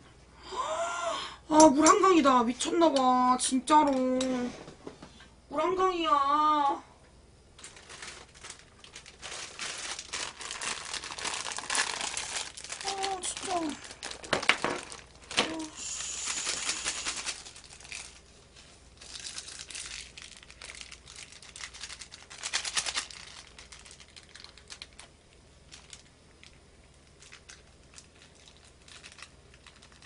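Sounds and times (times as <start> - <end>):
plastic packet crinkling and tearing: 7.6 - 30.0.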